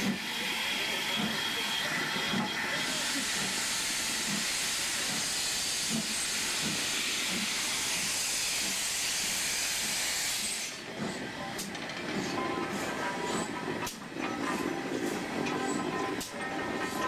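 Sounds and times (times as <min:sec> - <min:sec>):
steam hissing from locomotive: 0:00.0 - 0:11.3.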